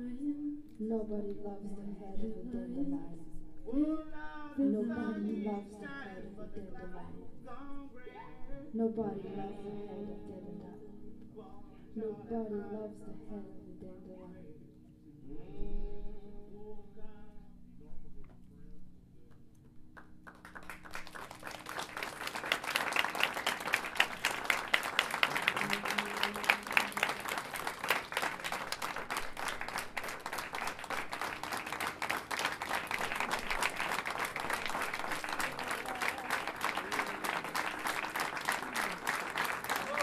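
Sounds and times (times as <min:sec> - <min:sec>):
audience applauding: 0:20.0 - 0:40.0.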